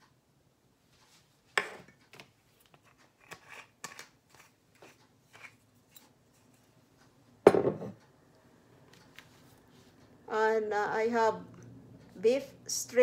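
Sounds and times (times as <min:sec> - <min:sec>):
glass bottle knocking: 0:07.5 - 0:08.0.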